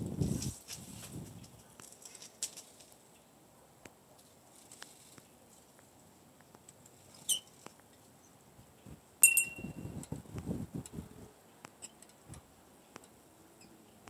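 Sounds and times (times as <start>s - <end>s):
sharp click with ring: 9.2s - 9.8s.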